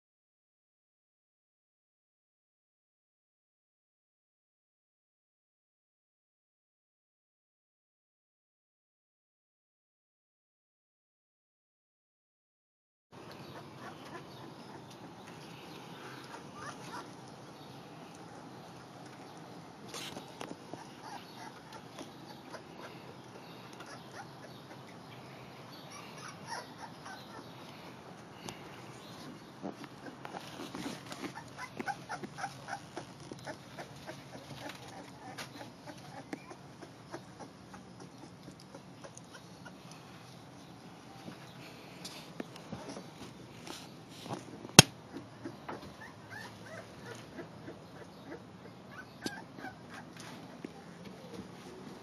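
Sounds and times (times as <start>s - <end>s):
puppy whimpering: 13.4s - 18.2s, 19.9s - 25.0s, 25.8s - 27.6s, 28.5s - 40.0s, 45.1s - 51.8s.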